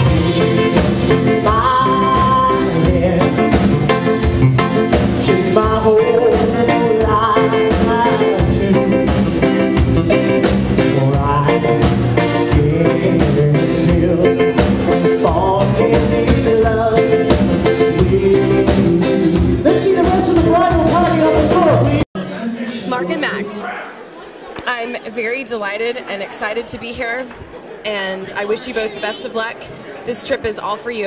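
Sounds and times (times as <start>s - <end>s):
electric guitars: 0.0s - 22.0s
person singing: 0.0s - 22.0s
drum kit: 0.0s - 22.1s.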